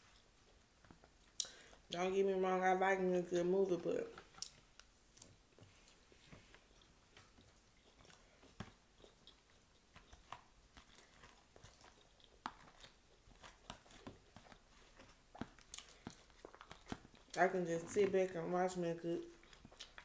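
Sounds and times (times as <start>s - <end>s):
crunchy chewing: 4.1s - 18.4s, 19.2s - 20.0s.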